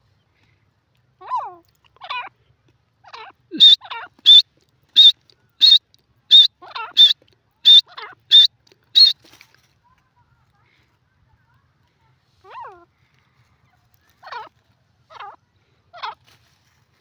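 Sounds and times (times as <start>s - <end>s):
softer lower bird notes: 3.5s - 9.2s
bird calling short high notes: 5.0s - 9.2s.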